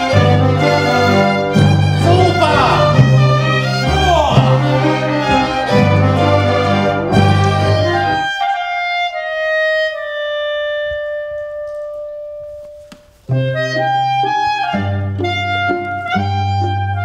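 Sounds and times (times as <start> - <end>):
full orchestra playing: 0.0 - 8.3.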